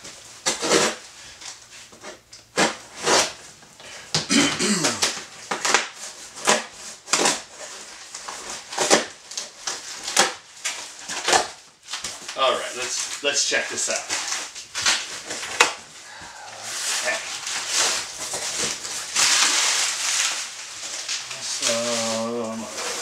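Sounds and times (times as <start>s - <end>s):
cardboard box rustling and ripping: 16.6s - 23.0s.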